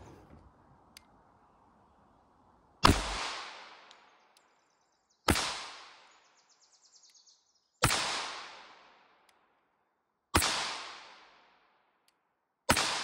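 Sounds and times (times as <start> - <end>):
pistol shots: 2.8 - 3.9, 5.3 - 6.0, 7.8 - 8.8, 10.3 - 11.3, 12.7 - 13.0.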